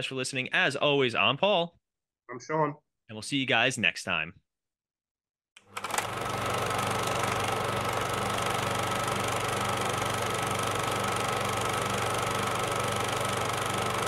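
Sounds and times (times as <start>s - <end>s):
film projector whirring and clattering: 5.6s - 14.0s.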